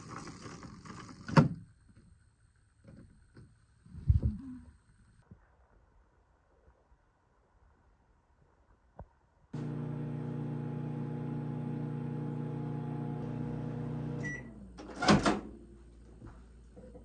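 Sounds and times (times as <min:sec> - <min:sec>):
microwave oven humming: 0:09.6 - 0:16.9.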